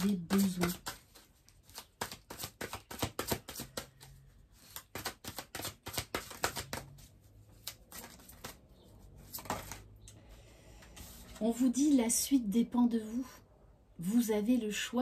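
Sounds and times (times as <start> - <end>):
cards shuffled by hand: 0.0 - 9.9.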